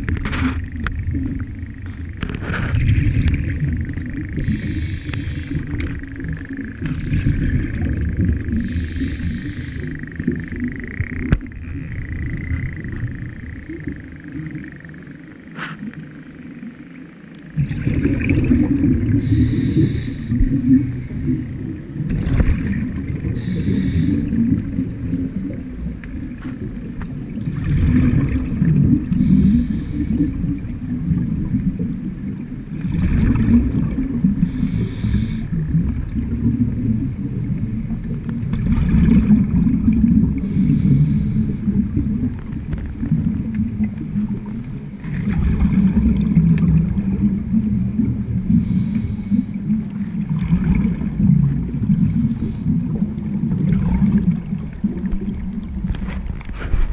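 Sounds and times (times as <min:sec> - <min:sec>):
exhaled bubbles gushing: 0:00.0 - 0:16.8, 0:17.4 - 0:56.9
low underwater rumble: 0:00.0 - 0:56.9
regulator inhale hiss: 0:04.4 - 0:06.0, 0:08.4 - 0:10.2, 0:19.1 - 0:21.7, 0:23.2 - 0:24.6, 0:29.1 - 0:30.6, 0:34.4 - 0:35.7, 0:40.4 - 0:42.0, 0:48.5 - 0:49.8, 0:51.9 - 0:53.0.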